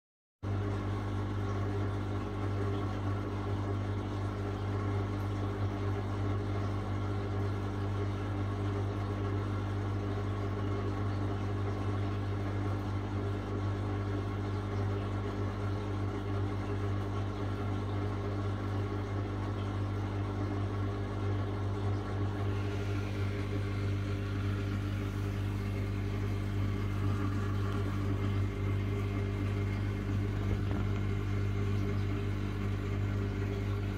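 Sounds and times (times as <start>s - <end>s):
pump humming: 0.4s - 33.9s
moving water: 7.4s - 33.9s.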